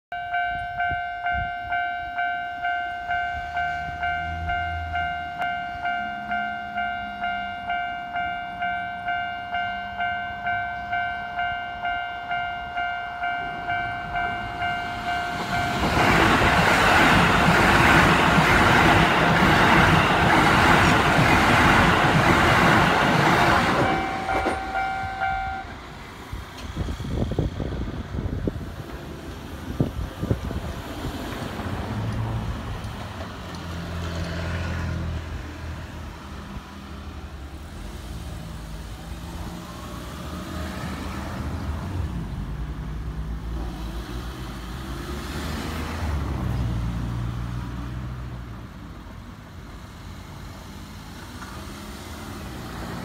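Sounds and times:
level-crossing warning bell: 0:00.1 - 0:26.0
electric train passing: 0:00.2 - 0:53.0.

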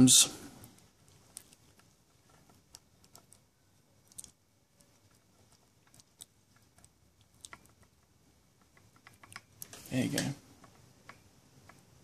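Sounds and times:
faint metal clicks and taps: 0:04.1 - 0:12.0.

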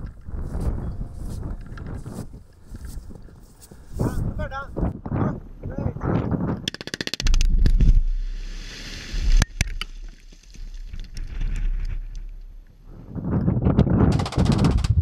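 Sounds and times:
wind rumble on microphone: 0:00.0 - 0:06.7, 0:11.1 - 0:15.0
rock and gravel raining down: 0:07.5 - 0:12.4.

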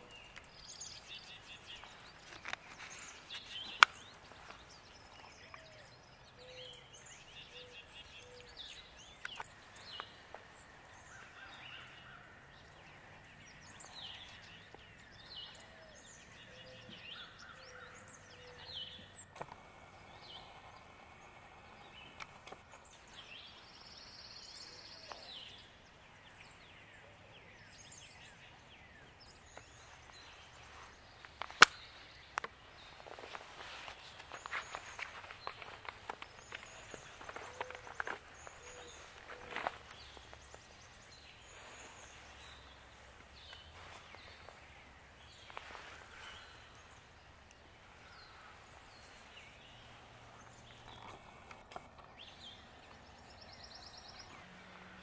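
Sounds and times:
birds chirping and trilling: 0:00.0 - 0:55.0
sharp click: 0:31.4 - 0:32.5.

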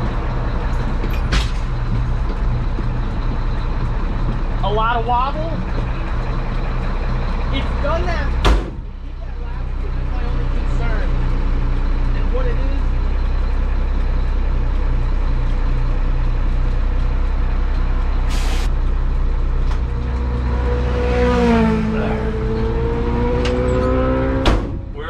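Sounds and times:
truck engine and road rumble: 0:00.0 - 0:25.0
whine rising in pitch: 0:18.0 - 0:20.7
hiss of air: 0:18.3 - 0:18.7.

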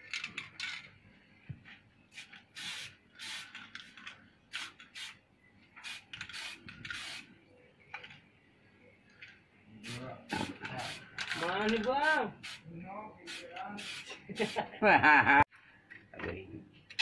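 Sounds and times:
spray paint can hissing: 0:02.1 - 0:03.6, 0:04.5 - 0:05.2, 0:05.8 - 0:07.3, 0:09.8 - 0:12.6, 0:13.3 - 0:14.6.

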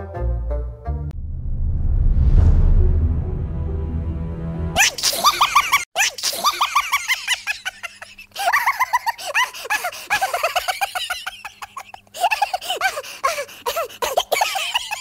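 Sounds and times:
high-pitched giggling laughter: 0:04.8 - 0:15.0.

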